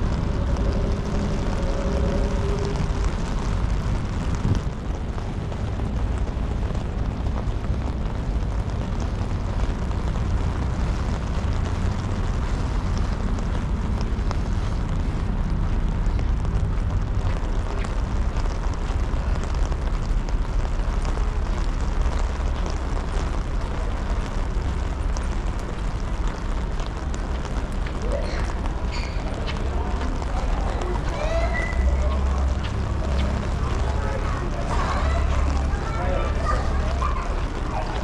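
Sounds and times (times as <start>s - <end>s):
wind buffeting microphone: 0.0s - 38.0s.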